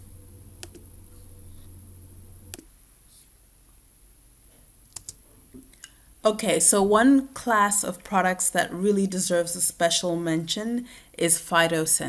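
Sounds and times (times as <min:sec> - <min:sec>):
steady low hum: 0:00.0 - 0:02.8
computer mouse clicks: 0:00.6 - 0:00.8, 0:04.9 - 0:06.0.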